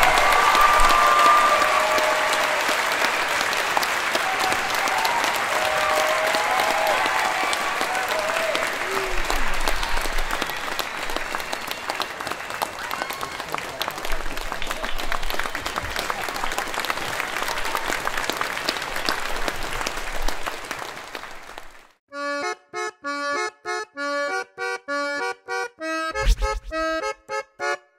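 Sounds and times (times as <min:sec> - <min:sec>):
crowd applauding: 0:00.0 - 0:22.0
short outro tune: 0:26.2 - 0:27.0.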